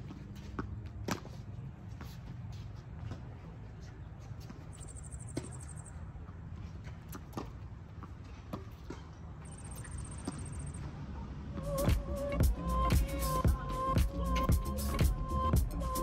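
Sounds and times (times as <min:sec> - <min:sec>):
tennis ball bouncing: 0:00.0 - 0:03.4, 0:04.3 - 0:11.0.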